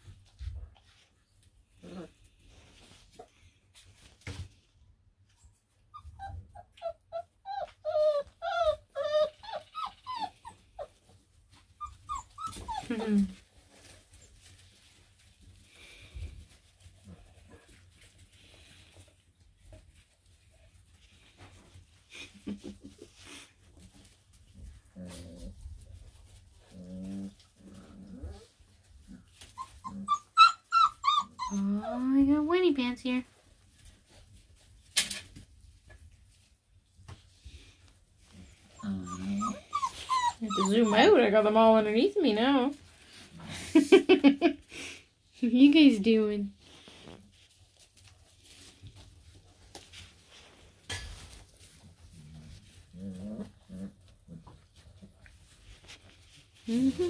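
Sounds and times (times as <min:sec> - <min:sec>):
puppy whining: 0:05.4 - 0:14.6, 0:26.7 - 0:32.2, 0:38.3 - 0:41.6, 0:56.6 - 0:57.0
puppies growling: 0:26.6 - 0:32.0, 0:51.8 - 0:55.1
puppies yelping: 0:29.6 - 0:31.6, 0:38.8 - 0:41.2.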